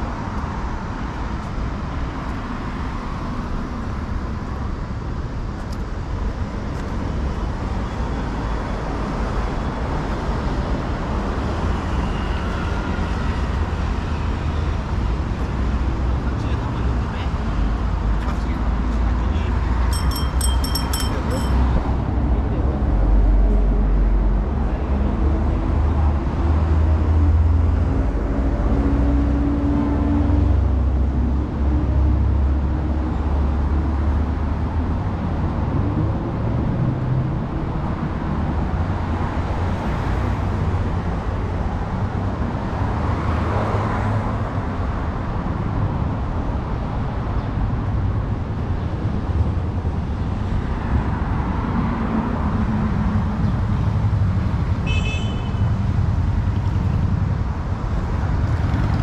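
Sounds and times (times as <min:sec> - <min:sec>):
traffic rumble: 0:12.7 - 0:59.0.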